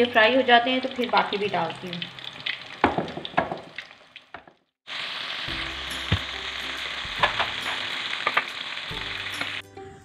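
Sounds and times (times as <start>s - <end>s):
chicken deep-frying in oil: 0.0s - 9.6s
oil popping: 1.0s - 4.7s, 5.5s - 9.6s.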